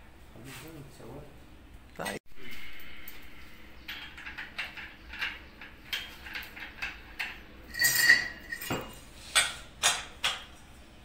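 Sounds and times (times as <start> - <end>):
small metal parts clinking: 2.6 - 9.0
ringing metallic scrape: 7.7 - 9.1.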